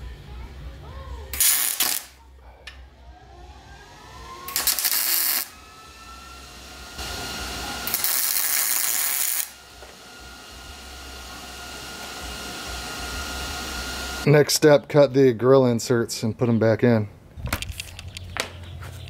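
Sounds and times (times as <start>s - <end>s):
welder crackling: 1.3s - 2.2s, 3.6s - 14.3s.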